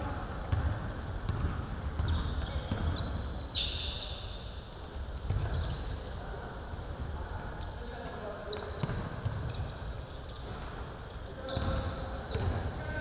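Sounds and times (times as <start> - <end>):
sneakers squeaking: 0.0 - 13.0
basketball dribbling thumps: 0.5 - 3.0.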